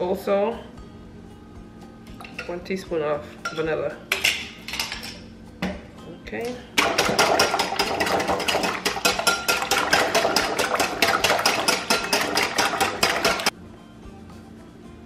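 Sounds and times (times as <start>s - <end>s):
whisk clinking against glass bowl: 6.9s - 13.5s.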